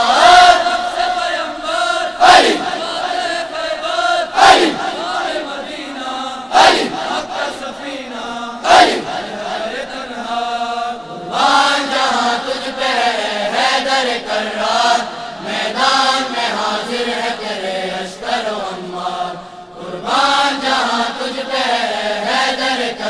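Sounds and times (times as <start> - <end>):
person breathing: 19.4 - 19.7.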